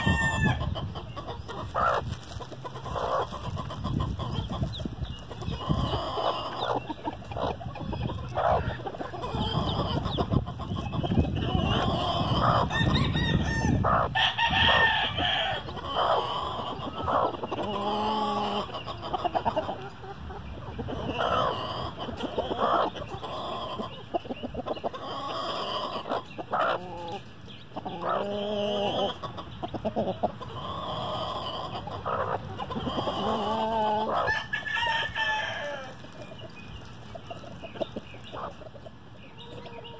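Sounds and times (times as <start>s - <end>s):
rooster crowing: 0.0s - 0.6s, 12.6s - 15.6s, 34.2s - 36.0s
chicks peeping: 0.0s - 39.9s
hen clucking: 0.0s - 39.9s.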